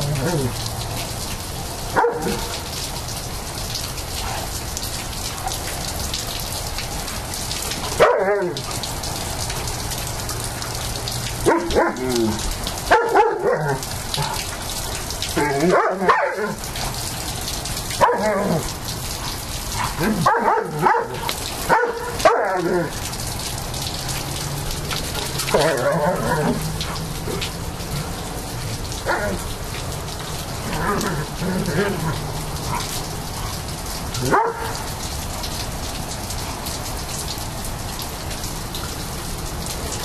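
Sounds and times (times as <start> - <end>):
steady rain falling: 0.0 - 40.0
dogs barking: 1.9 - 2.6, 7.8 - 8.9, 11.3 - 14.4, 15.4 - 16.7, 17.9 - 23.0, 25.5 - 27.2, 30.8 - 34.9.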